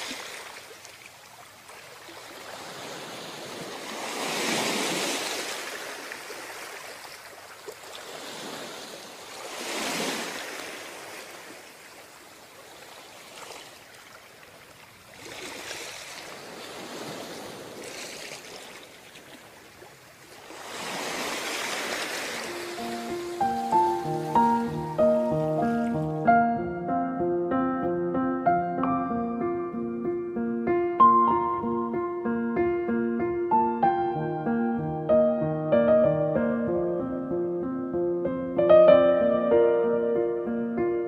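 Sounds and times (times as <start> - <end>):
sea waves surging and washing back: 0.0 - 26.3.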